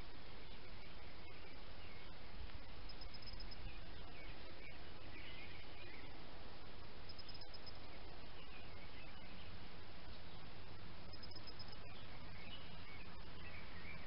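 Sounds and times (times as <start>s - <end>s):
faint birdsong: 0.0s - 14.0s
steady outdoor hiss: 0.0s - 14.0s
high evenly spaced ticks: 2.4s - 3.7s, 7.0s - 7.9s, 11.0s - 11.8s.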